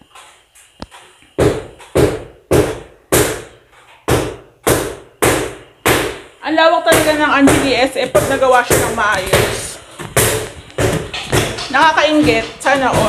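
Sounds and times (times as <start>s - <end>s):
hammer blows ringing: 1.4s - 13.0s.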